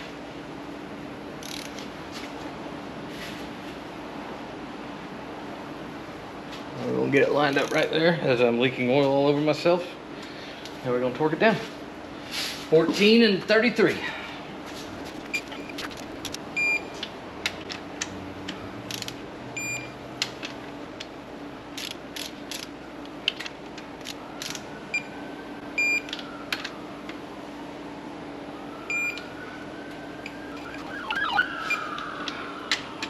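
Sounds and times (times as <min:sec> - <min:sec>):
torque wrench ratchet clicks: 0:01.4 - 0:01.8, 0:07.5 - 0:07.9, 0:18.9 - 0:19.2, 0:21.8 - 0:22.7
short electronic beeps: 0:15.0 - 0:16.9.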